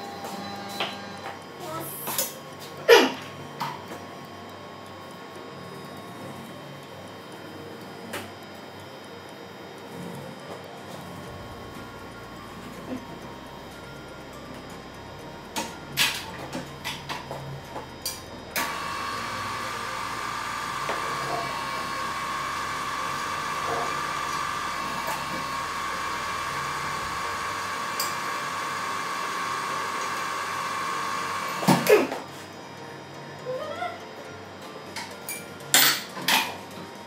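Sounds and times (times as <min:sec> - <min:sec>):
drill press whining: 0:11.3 - 0:32.3.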